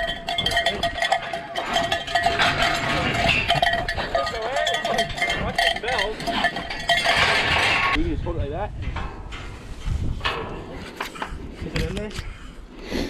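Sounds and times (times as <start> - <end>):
bell clanging rapidly: 0.0 - 8.0.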